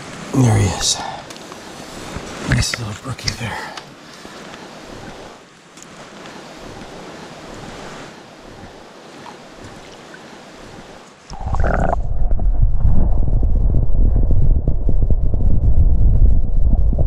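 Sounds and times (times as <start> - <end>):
stream water rushing over rocks: 0.0 - 12.0
loud low rumble: 11.4 - 17.0.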